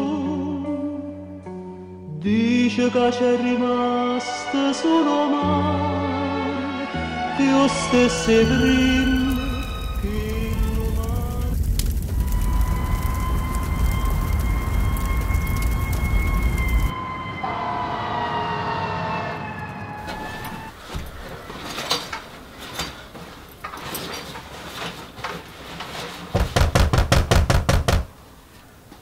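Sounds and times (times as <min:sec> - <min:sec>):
siren wailing: 0:12.2 - 0:20.7
knocks and rustles of handling: 0:20.7 - 0:27.9.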